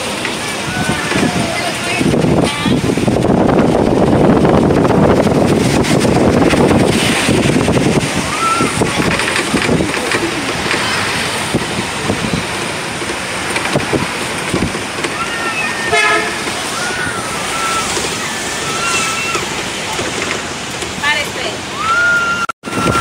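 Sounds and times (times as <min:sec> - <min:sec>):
street traffic: 0:00.0 - 0:23.0
wind rushing over microphone: 0:00.0 - 0:23.0.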